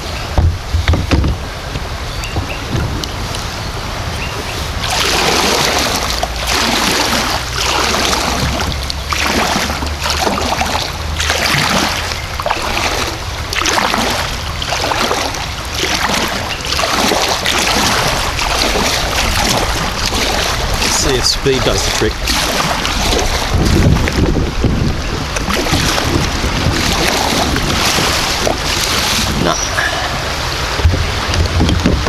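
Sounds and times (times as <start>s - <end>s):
kayak paddle splashing: 0.0s - 32.0s
rushing creek water: 0.0s - 32.0s.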